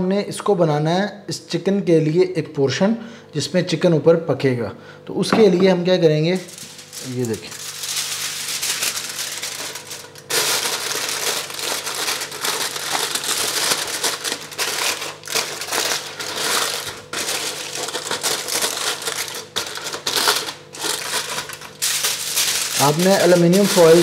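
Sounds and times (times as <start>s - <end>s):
aluminium foil crinkling: 6.3s - 24.0s.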